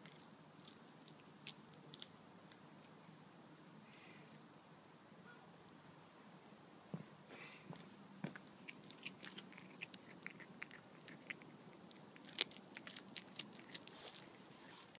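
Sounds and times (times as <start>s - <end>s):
cat crunching food: 0.0s - 3.0s, 8.3s - 15.0s.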